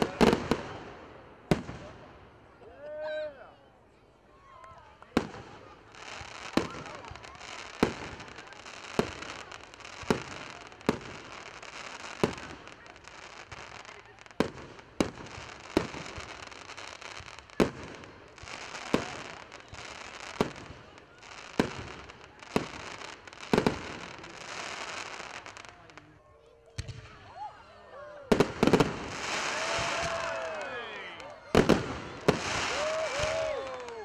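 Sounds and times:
crackling hiss of stars: 0:28.4 - 0:34.0.

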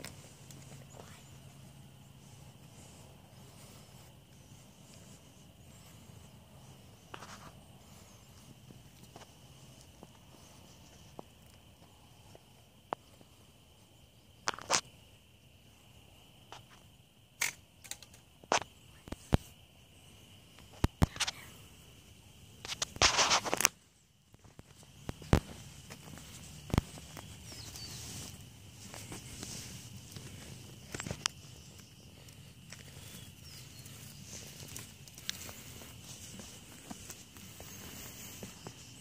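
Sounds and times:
high-pitched insect drone: 0:00.0 - 0:39.0
sharp clicks and crunches: 0:14.4 - 0:14.9, 0:17.4 - 0:19.5, 0:20.7 - 0:21.4, 0:22.6 - 0:31.4.

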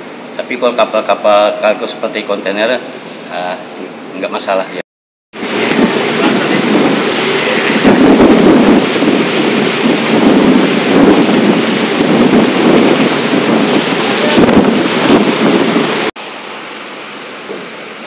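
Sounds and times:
wind gusting against microphone: 0:05.4 - 0:16.2
heavy rain falling: 0:05.4 - 0:18.0.

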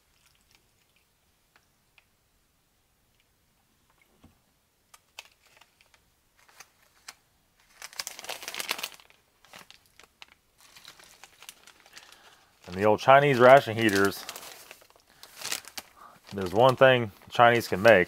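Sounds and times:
packaging crinkling: 0:04.9 - 0:18.0.

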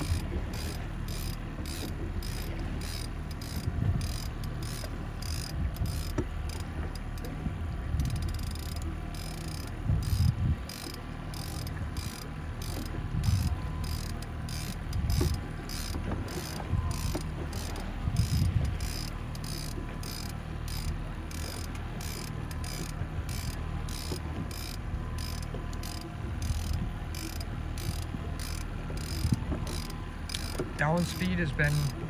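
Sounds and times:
fishing reel clicking: 0:00.0 - 0:07.3, 0:08.0 - 0:32.0
wind on microphone: 0:01.7 - 0:04.4, 0:05.2 - 0:06.4, 0:09.7 - 0:10.8, 0:11.6 - 0:14.0, 0:14.8 - 0:19.3, 0:24.2 - 0:30.8.

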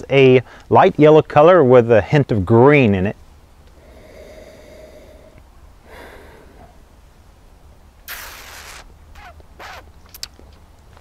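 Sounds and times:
person breathing: 0:00.4 - 0:00.7, 0:03.7 - 0:06.9
mouth clicks: 0:08.1 - 0:10.5.

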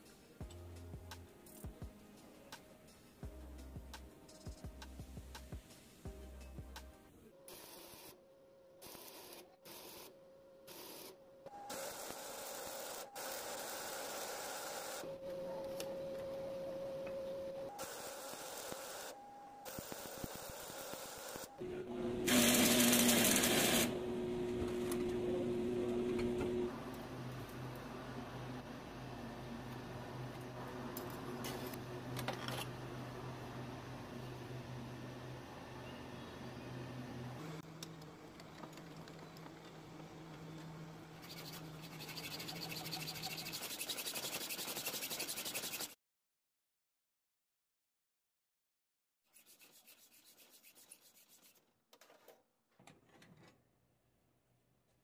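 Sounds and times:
power tool motor whining: 0:22.2 - 0:24.1
hacksaw sawing metal: 0:41.3 - 0:45.9.

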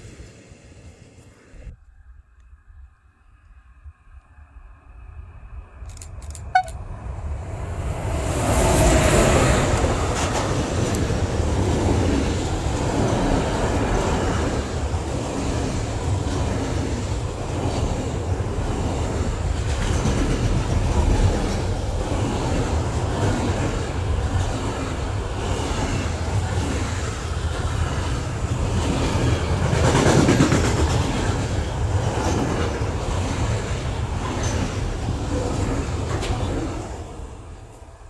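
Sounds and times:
train rumbling on rails: 0:00.0 - 0:02.7, 0:03.3 - 0:38.0.

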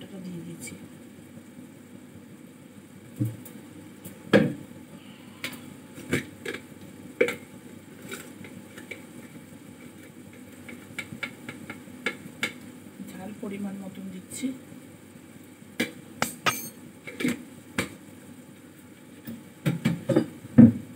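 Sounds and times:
metal utensils clinking on steel pan: 0:16.2 - 0:16.8.

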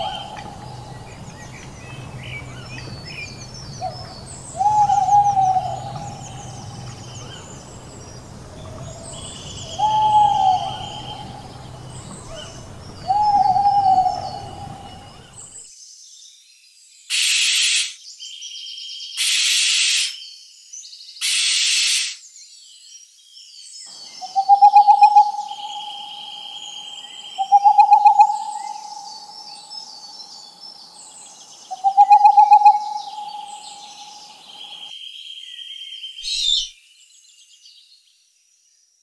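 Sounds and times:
owl hoots: 0:00.0 - 0:15.5, 0:24.2 - 0:29.4, 0:31.7 - 0:34.9
owl hissing screeches: 0:17.1 - 0:18.0, 0:19.2 - 0:20.2, 0:21.2 - 0:22.2.

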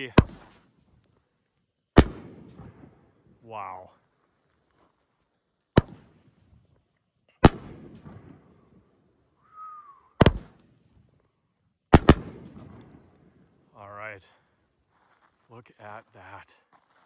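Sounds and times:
firework bangs: 0:02.0 - 0:03.1, 0:07.4 - 0:08.7, 0:10.2 - 0:10.8, 0:11.9 - 0:13.4.

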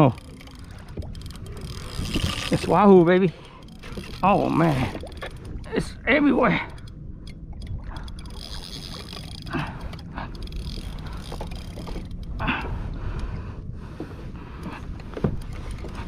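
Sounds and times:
wind and water rumble: 0:00.0 - 0:16.0
fishing rod and reel knocks: 0:00.1 - 0:05.7, 0:06.6 - 0:12.7.

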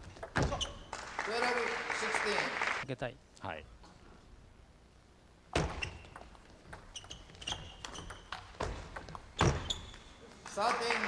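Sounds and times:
table tennis ball clicks and knocks: 0:05.6 - 0:09.9.

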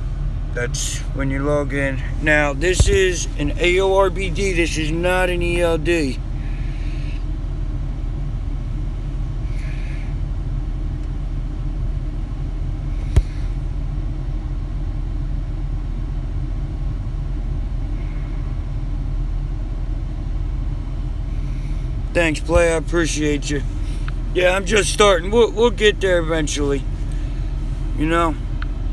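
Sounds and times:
truck engine idling: 0:00.0 - 0:28.9.

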